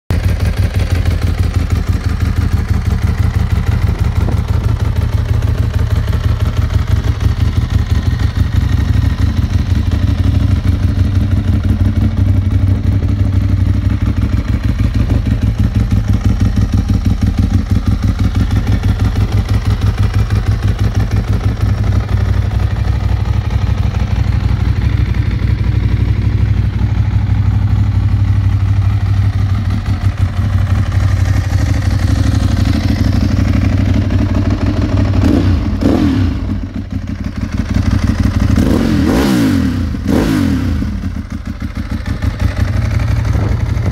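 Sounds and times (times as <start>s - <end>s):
motorcycle engine idling: 0.1s - 43.9s.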